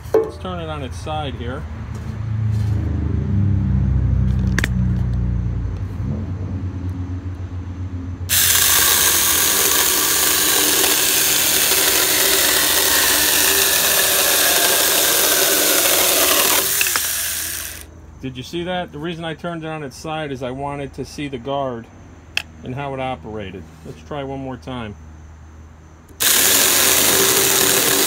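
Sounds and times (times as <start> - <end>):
electric chainsaw cutting wood: 8.3 - 17.9, 26.2 - 28.0.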